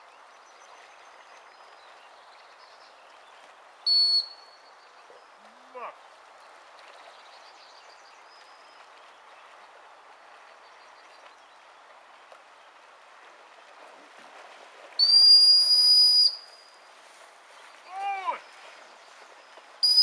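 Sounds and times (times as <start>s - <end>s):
dog whistle blast: 3.9s - 4.4s, 15.0s - 16.4s.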